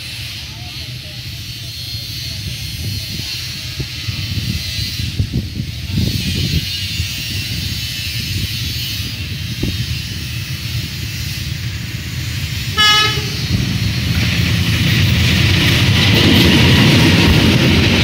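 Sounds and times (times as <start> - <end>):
diesel locomotive rumble: 0.0 - 18.0
locomotive horn blast: 12.7 - 13.6.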